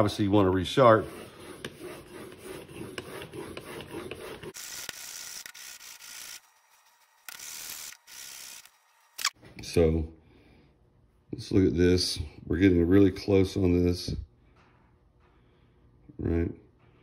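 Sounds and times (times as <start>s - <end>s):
blade scratching on abrasive paper: 0.8s - 9.1s.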